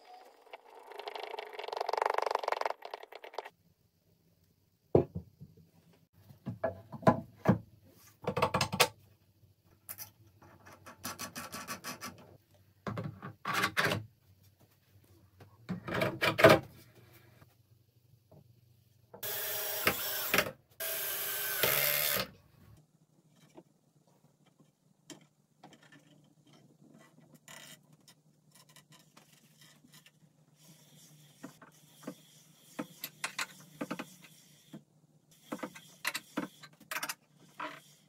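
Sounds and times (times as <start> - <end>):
cordless drill driving screws: 19.2 - 22.3.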